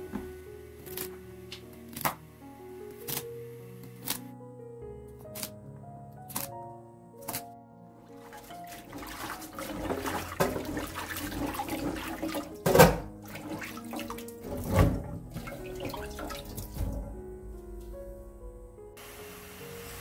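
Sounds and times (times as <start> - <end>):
background music: 0.0 - 20.0
water sloshing in a bowl: 8.1 - 17.1.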